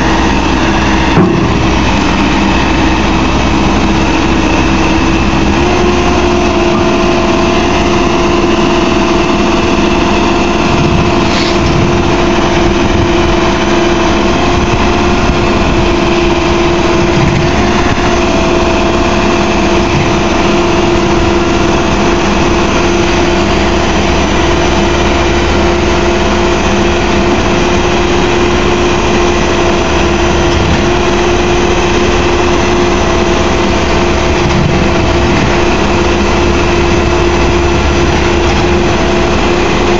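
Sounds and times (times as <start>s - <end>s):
diesel engine running: 0.0s - 39.9s
steady whine: 0.0s - 39.9s.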